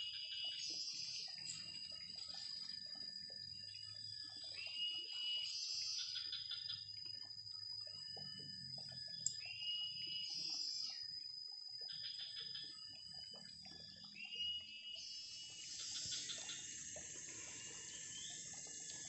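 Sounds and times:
high-pitched insect drone: 0:00.0 - 0:19.0
bird whistles and chirps: 0:04.4 - 0:06.8, 0:09.2 - 0:11.0, 0:14.1 - 0:19.0.

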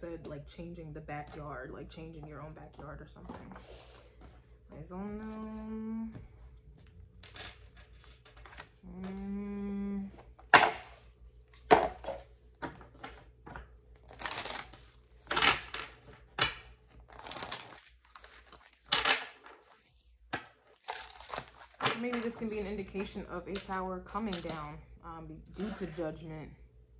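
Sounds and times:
person humming: 0:08.8 - 0:10.2
cards being shuffled: 0:10.2 - 0:24.6.

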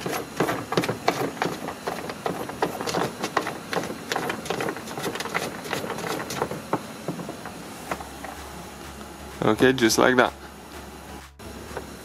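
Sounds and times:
plastic clicking and scraping: 0:00.0 - 0:08.0.

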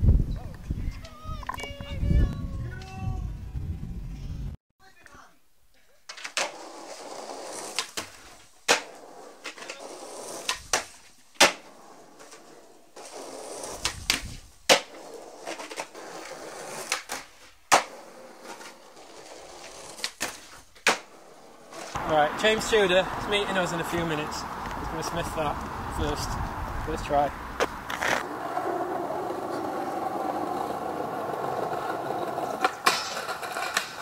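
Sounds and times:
skateboard clacks: 0:06.1 - 0:12.4, 0:13.0 - 0:21.2, 0:27.6 - 0:34.0
skateboard wheels rolling on pavement: 0:06.1 - 0:34.0.

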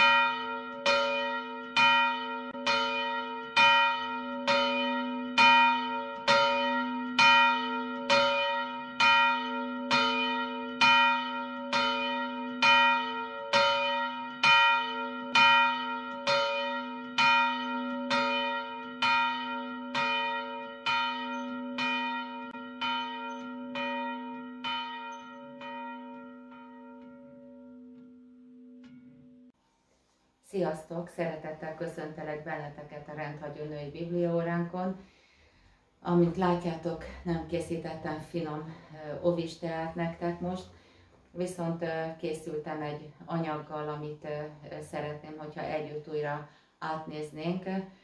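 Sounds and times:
church bell tolling: 0:00.0 - 0:29.5.

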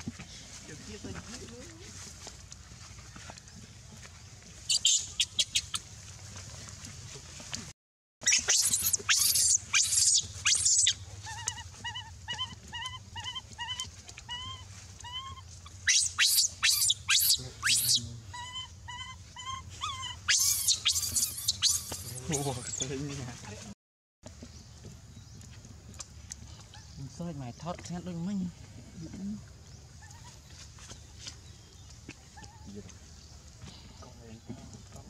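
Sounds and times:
baby monkey chirping calls: 0:04.7 - 0:05.8, 0:08.2 - 0:22.8
baby monkey screaming: 0:04.7 - 0:05.8, 0:08.2 - 0:22.8.

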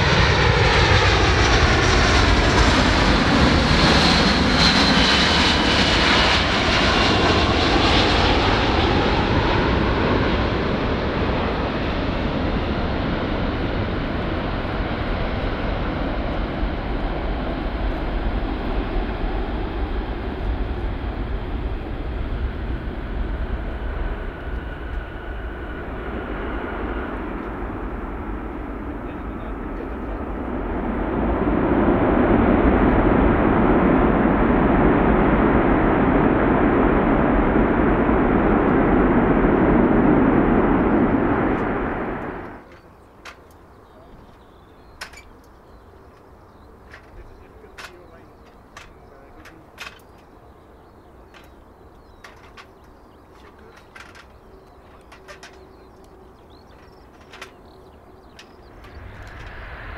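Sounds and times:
jet landing on runway: 0:00.0 - 0:59.9.

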